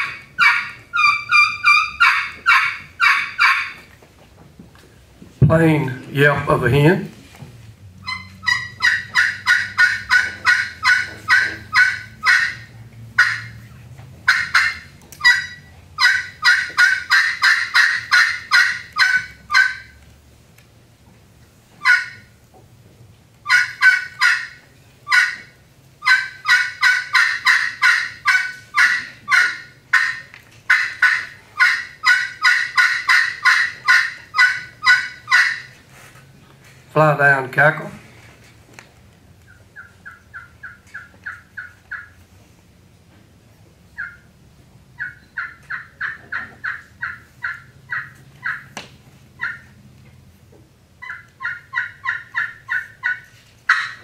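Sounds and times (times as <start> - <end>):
turkey call yelps: 0.0 - 3.9, 8.0 - 20.0, 21.8 - 22.4, 23.4 - 35.8, 39.4 - 42.2, 44.0 - 44.3, 45.0 - 48.8, 49.4 - 49.8, 51.0 - 54.0.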